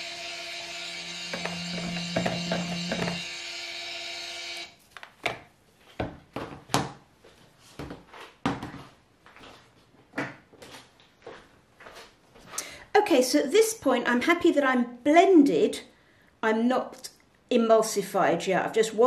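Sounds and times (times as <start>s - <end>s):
stick blender running: 0.0s - 4.7s
blender knocking in plastic jug: 1.3s - 3.2s.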